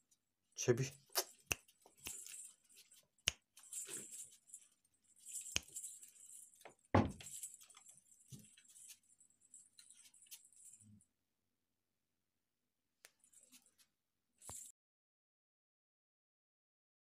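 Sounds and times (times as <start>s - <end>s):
loud thump: 7.0s - 7.3s.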